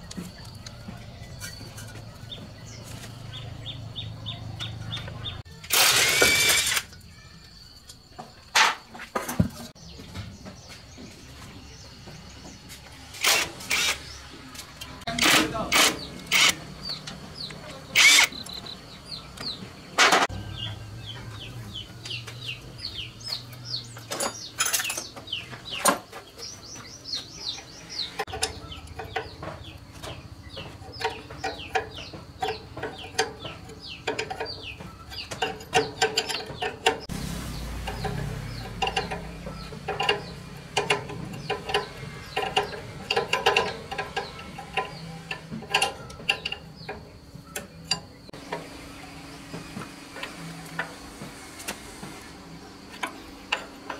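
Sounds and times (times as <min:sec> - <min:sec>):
cordless impact wrench bursts: 0:05.7 - 0:06.9, 0:13.2 - 0:14.1, 0:15.2 - 0:16.6, 0:18.0 - 0:18.4
chickens clucking: 0:14.3 - 0:37.1.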